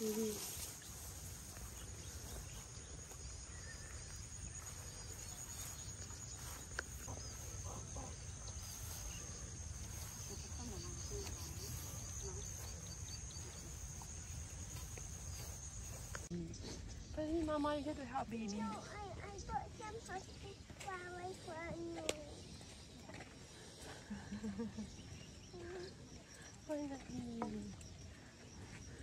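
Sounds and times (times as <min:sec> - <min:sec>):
high-pitched insect drone: 0:00.0 - 0:16.3.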